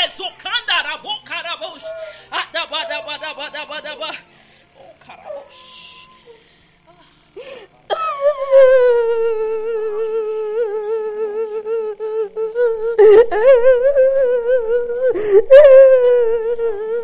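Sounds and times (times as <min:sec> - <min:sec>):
man chanting drawn-out tones: 0:00.0 - 0:06.3.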